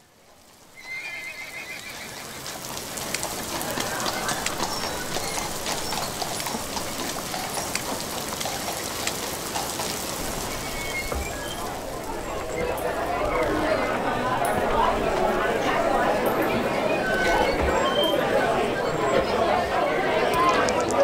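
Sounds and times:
rain hissing: 0.0s - 16.0s
horse whinnying: 0.8s - 2.4s, 10.4s - 11.7s
sharp clicks of raindrops: 2.3s - 13.6s.

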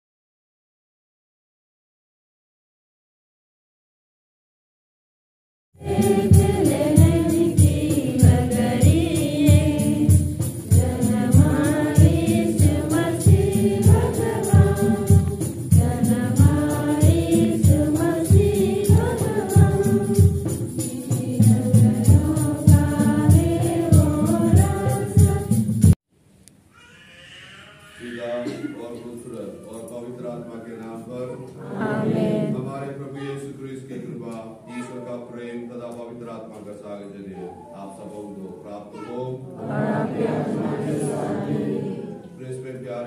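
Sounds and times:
choir singing a hymn: 5.8s - 25.9s, 31.4s - 33.0s, 39.4s - 42.7s
steady beat: 5.8s - 26.0s.

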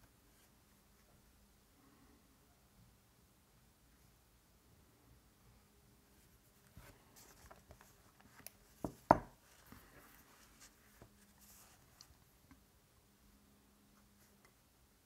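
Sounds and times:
sharp knocks on a table: 8.8s - 9.4s.

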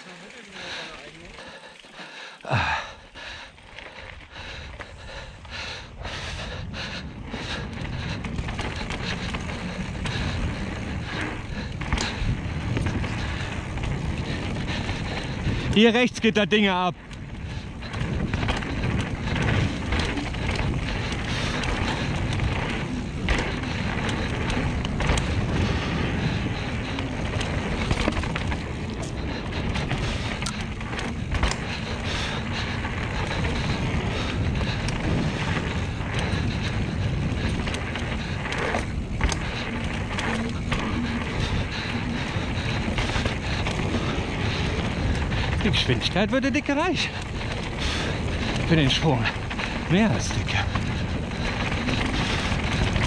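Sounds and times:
bike clicks and rattles: 0.0s - 53.0s
tyres rolling on packed dirt: 0.0s - 53.0s
wind on microphone: 4.6s - 15.8s, 17.1s - 46.0s.

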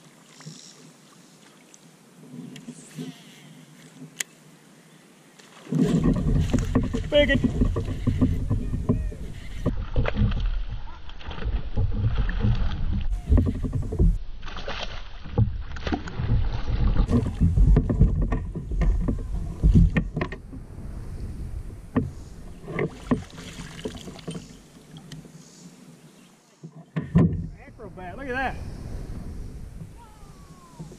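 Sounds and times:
knocks and clicks of fishing gear: 5.7s - 20.6s, 21.9s - 25.3s, 26.6s - 27.6s
low rumble: 15.5s - 22.7s, 27.4s - 30.9s.

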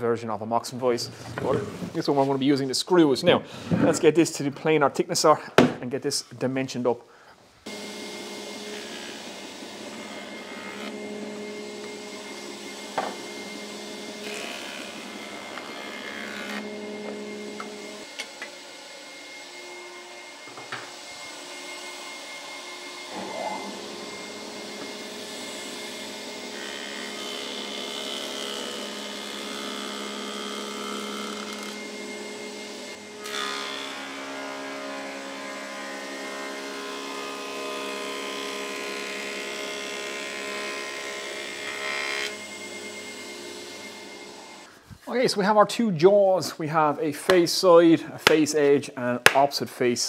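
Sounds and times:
dust extractor rushing air: 7.7s - 15.3s
planer machine hum: 7.7s - 44.7s
boards fed through cutter block: 48.2s - 48.5s.

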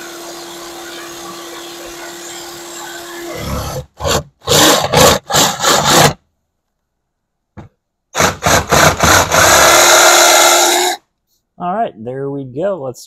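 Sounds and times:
jigsaw cutting wood: 0.0s - 6.2s, 8.1s - 11.0s.

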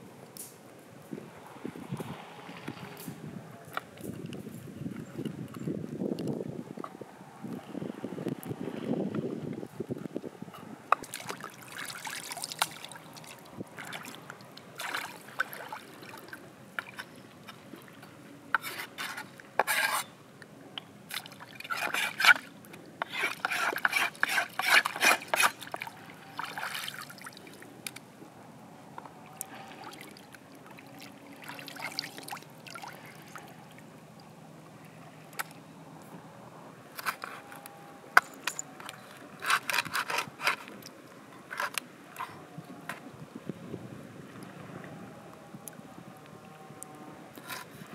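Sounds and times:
water splashing and trickling: 10.9s - 20.1s, 21.0s - 28.0s, 29.2s - 34.3s.

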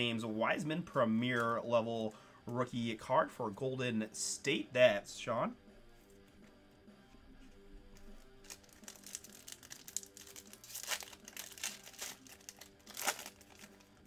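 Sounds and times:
foil wrapper crinkling: 8.0s - 14.0s.

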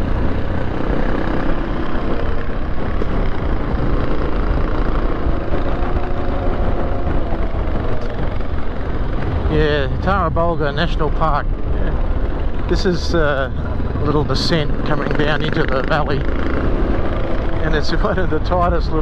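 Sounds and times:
wind noise on microphone: 0.0s - 14.0s
motorcycle engine running: 0.0s - 19.0s.

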